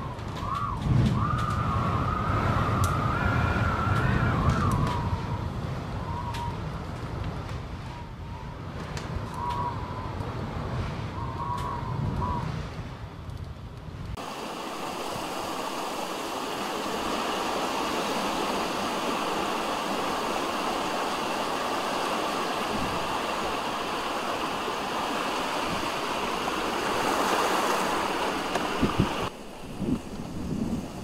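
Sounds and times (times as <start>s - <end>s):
heavy rain: 14.2s - 30.3s.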